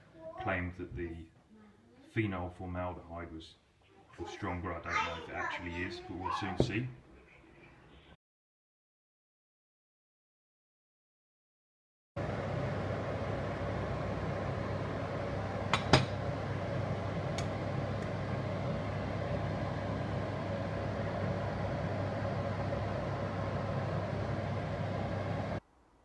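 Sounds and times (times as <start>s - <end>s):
water boiling in saucepan: 12.2s - 25.6s.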